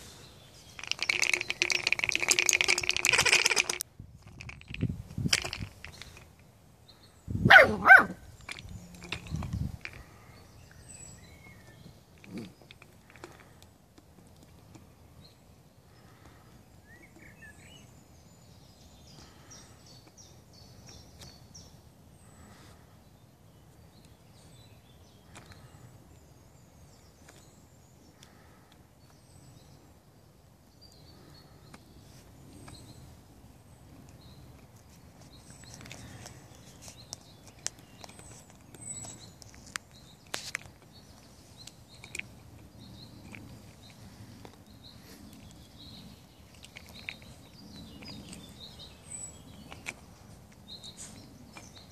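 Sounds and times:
puppy barking: 7.5 - 8.2.

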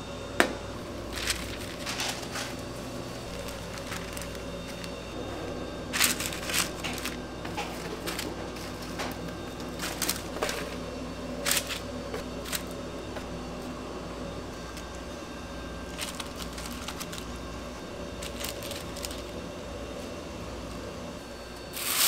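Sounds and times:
kitchen equipment hum: 0.0 - 22.0
paper rustles: 1.1 - 5.0, 5.9 - 10.8, 11.4 - 12.8, 15.8 - 17.3, 18.1 - 19.4.

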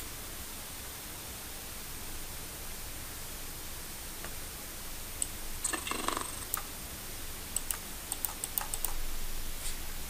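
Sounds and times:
mouse and keyboard clicks: 5.2 - 6.7, 7.6 - 9.0.

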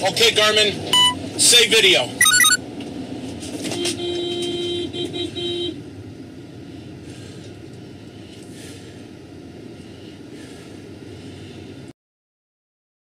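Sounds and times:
road and engine rumble: 0.0 - 11.9
vehicle horn blasts and toots: 3.8 - 5.8.

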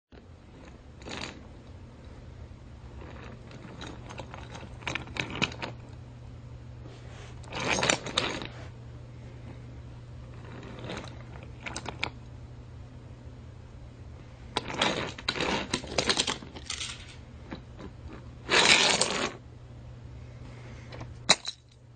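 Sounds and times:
steady low hum: 0.1 - 21.9
small hard objects clattering: 14.7 - 17.2.

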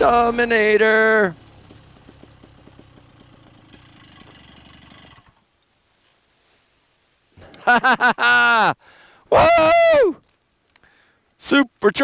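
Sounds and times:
faint paramotor engine pulsing: 0.0 - 5.5.

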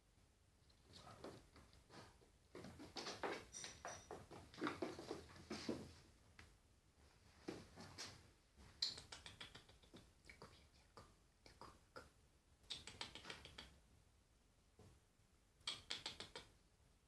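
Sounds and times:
kitten scratching taps: 12.7 - 13.8, 15.7 - 16.5.

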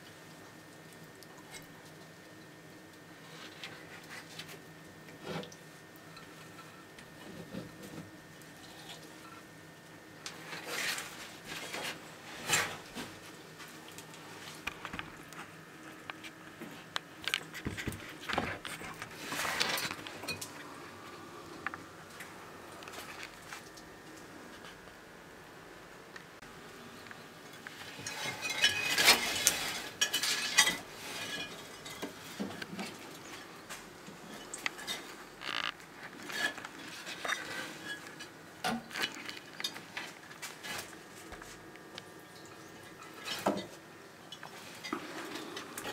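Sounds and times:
lizard crunching food: 34.4 - 42.0.

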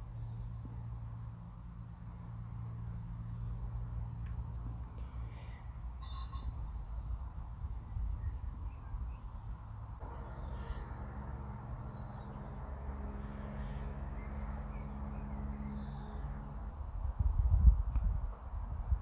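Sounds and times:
birds chirping: 1.8 - 17.1
low rumble: 6.7 - 19.0
low drone: 10.0 - 17.4.

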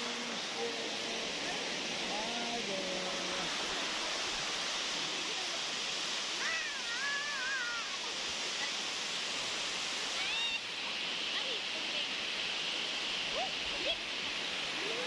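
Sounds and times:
waterfall roaring: 0.0 - 15.0.

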